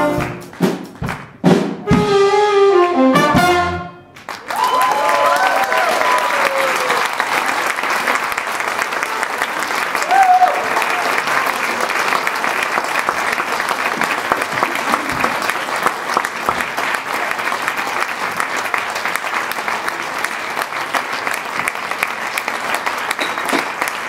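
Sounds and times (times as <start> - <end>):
audience applauding: 4.2 - 24.0.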